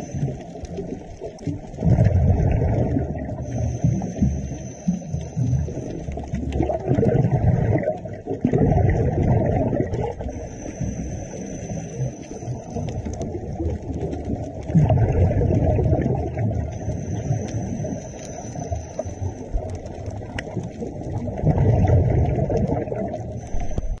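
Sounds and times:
faint high whine: 0.0 - 1.0, 2.4 - 6.7, 10.2 - 13.3, 15.6 - 20.6, 23.2 - 24.0
exhaled bubbles rushing: 0.0 - 24.0
underwater regulator breathing: 2.7 - 6.4, 10.2 - 13.2, 23.4 - 24.0.

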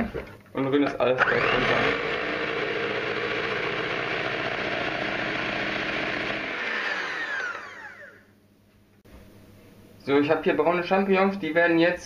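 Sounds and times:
electric hand mixer whisking: 1.2 - 8.3
mixer motor spinning down: 1.2 - 8.3.

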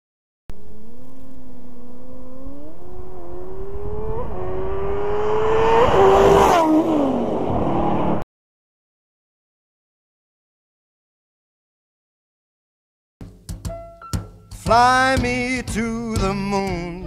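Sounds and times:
vehicle engine accelerating hard: 0.5 - 8.2
loud rush of vehicle passing: 0.6 - 8.2.

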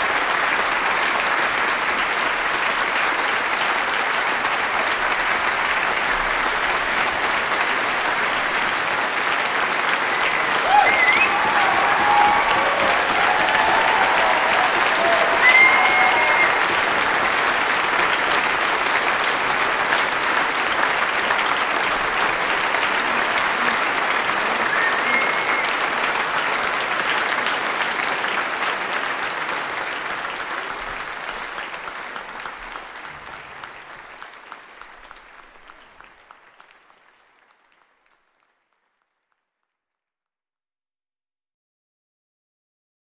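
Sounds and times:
audience applauding: 0.0 - 39.4
whistle: 10.4 - 11.4, 24.7 - 25.8.

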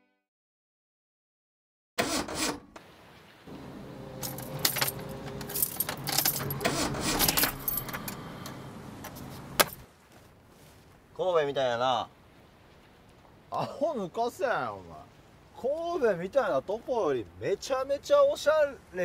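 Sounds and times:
car humming: 2.9 - 9.8
keys jangling: 4.2 - 8.2.

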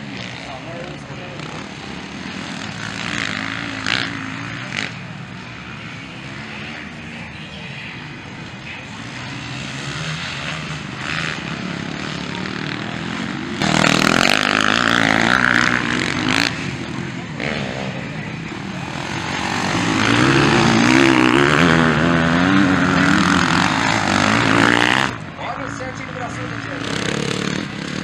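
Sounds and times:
motocross bike engines: 0.0 - 28.0
bike accelerating hard: 9.0 - 25.2.

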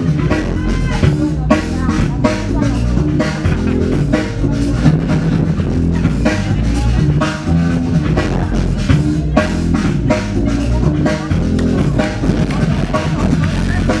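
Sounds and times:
loud music with heavy drum beat: 0.0 - 14.0.

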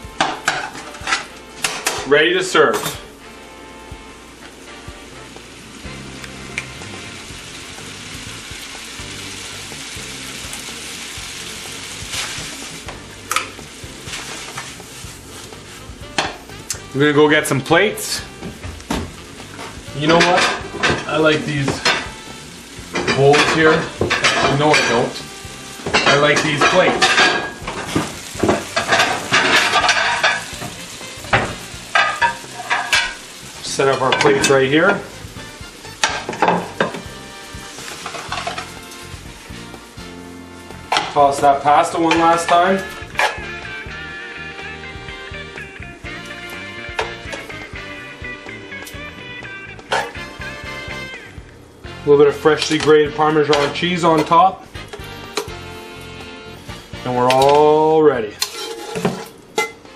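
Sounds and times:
food sizzling in a pan: 0.0 - 59.9
utensil clinking on pan: 31.3 - 33.2
stirring: 58.4 - 59.7.

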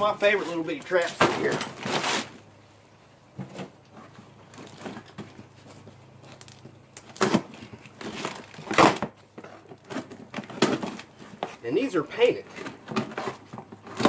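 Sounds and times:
cardboard ripping: 1.8 - 2.4, 7.1 - 9.1.

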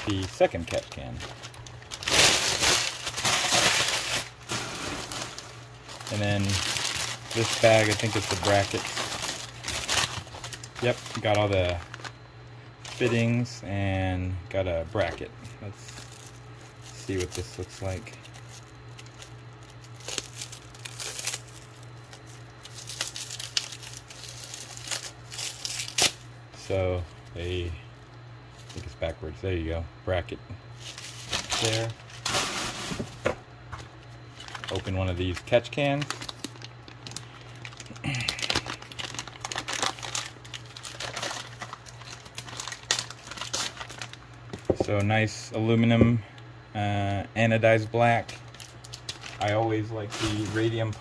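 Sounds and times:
plastic bags crinkling: 0.0 - 12.2, 14.9 - 26.2, 30.8 - 33.0, 34.2 - 44.8, 48.2 - 51.0
steady low hum: 0.0 - 51.0.

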